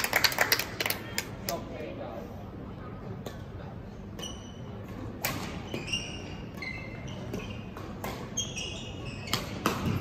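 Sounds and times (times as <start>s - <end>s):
shoes squeaking on court: 4.2s - 10.0s.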